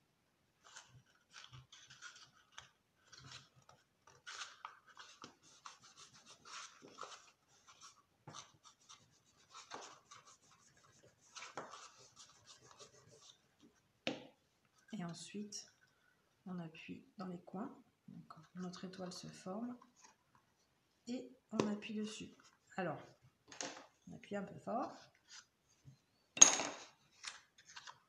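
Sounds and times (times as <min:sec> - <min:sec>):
paper and card rustling: 0:00.6 - 0:13.8, 0:18.4 - 0:20.5, 0:24.7 - 0:25.9, 0:26.7 - 0:28.0.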